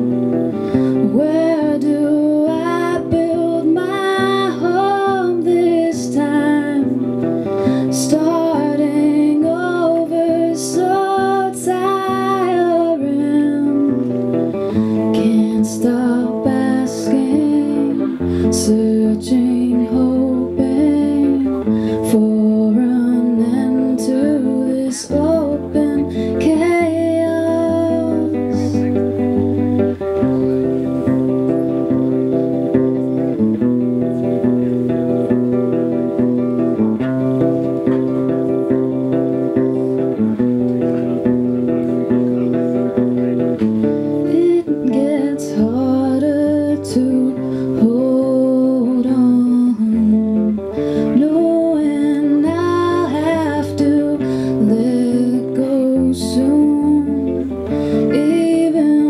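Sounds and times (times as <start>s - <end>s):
woman singing: 0.0s - 29.9s, 44.0s - 59.0s
acoustic guitar chords: 0.0s - 59.0s.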